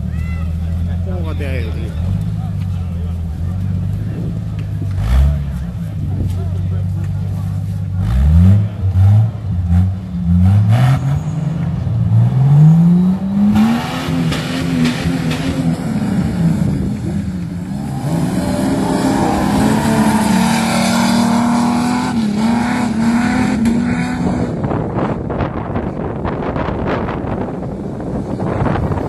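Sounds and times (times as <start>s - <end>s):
engine revving hard: 17.8s - 24.8s.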